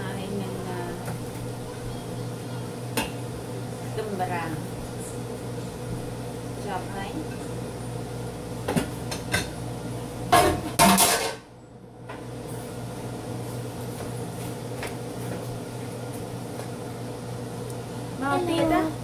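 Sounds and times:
pan and plate clattering: 10.3s - 11.4s.

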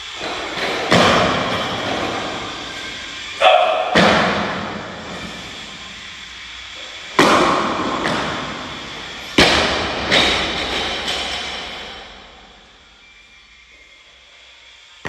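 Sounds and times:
loud thud: 3.9s - 4.9s.

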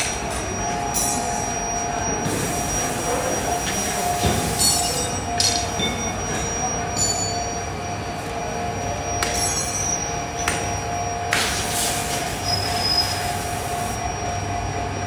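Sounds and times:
machinery whining: 0.0s - 15.0s
metallic clinks: 9.2s - 10.0s.

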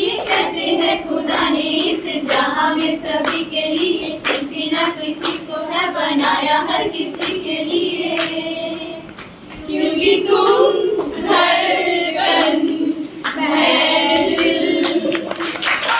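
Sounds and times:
group of voices singing: 0.0s - 15.9s
hand claps: 0.1s - 5.6s, 6.2s - 8.4s, 9.1s - 9.7s, 14.1s - 15.9s.

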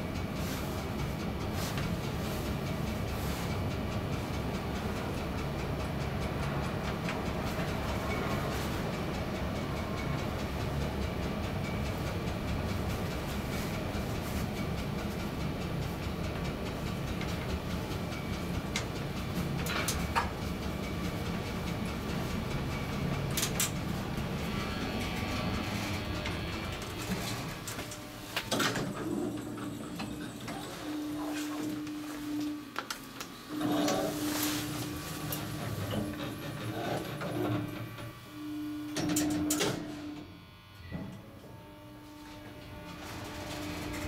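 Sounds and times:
elevator car rumbling: 0.0s - 32.7s, 33.5s - 38.1s
elevator doors clunking shut: 22.5s - 30.7s.

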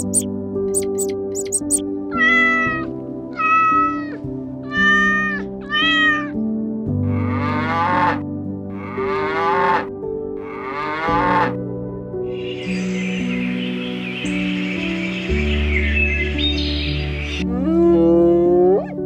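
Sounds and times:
rough longer calls: 0.0s - 1.8s
background music: 0.0s - 19.0s
cat-like meows: 2.1s - 6.4s.

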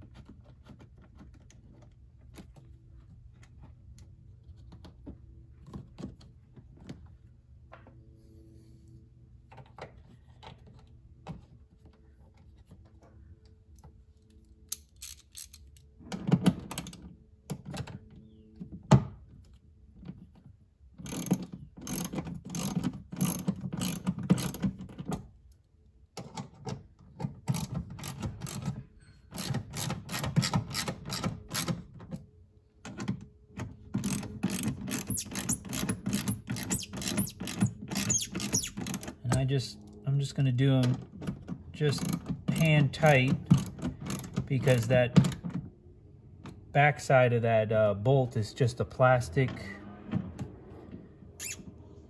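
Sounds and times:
hand ratchet clicking: 14.7s - 15.8s, 21.0s - 24.6s, 29.3s - 31.8s, 34.0s - 39.2s, 42.0s - 44.9s.

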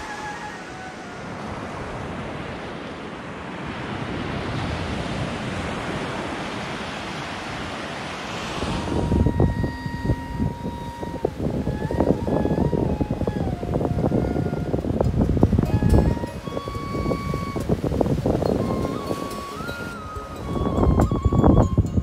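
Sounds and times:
surf washing on a beach: 0.0s - 22.0s
wind buffeting the microphone: 0.0s - 22.0s
steady tone: 8.8s - 13.5s.

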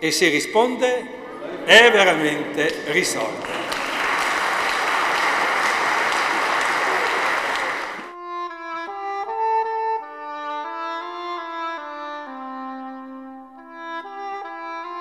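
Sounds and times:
audience applauding: 1.4s - 8.1s
slow instrumental music: 8.1s - 15.0s.

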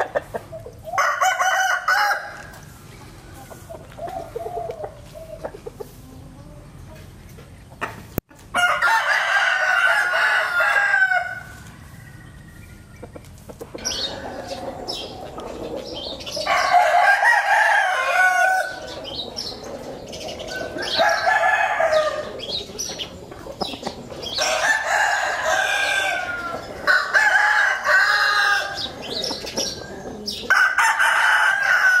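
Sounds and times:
rooster crowing: 0.9s - 2.5s, 8.6s - 11.6s, 16.4s - 18.9s, 20.6s - 22.4s, 24.4s - 28.8s, 30.5s - 32.0s.

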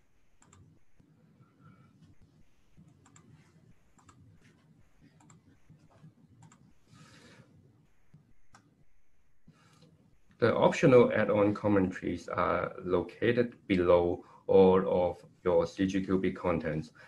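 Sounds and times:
low steady background hum: 0.0s - 17.0s
computer mouse clicks: 0.4s - 0.8s, 2.8s - 6.8s, 8.1s - 8.8s.

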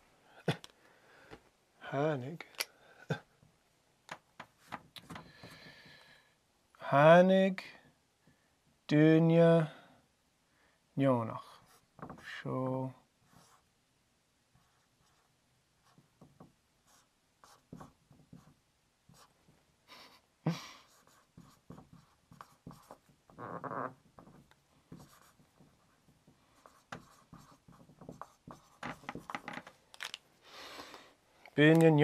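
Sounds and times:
marker on whiteboard: 4.1s - 5.9s, 11.4s - 12.4s, 13.2s - 13.7s, 14.5s - 19.6s, 20.9s - 29.7s.

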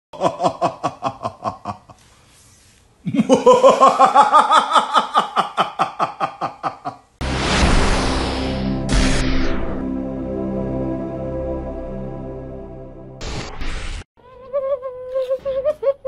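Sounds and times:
person laughing: 0.2s - 2.0s, 3.0s - 7.1s
music: 7.2s - 13.2s.

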